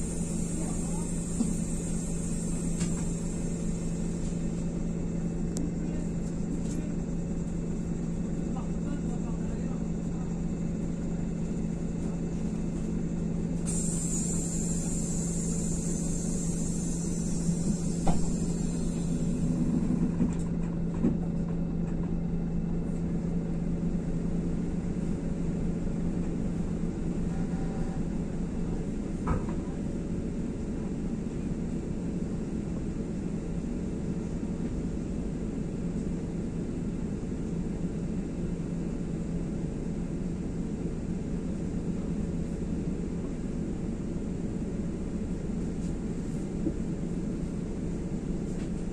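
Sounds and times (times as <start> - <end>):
bus diesel engine drone: 0.0 - 48.9
high hiss: 13.6 - 19.4.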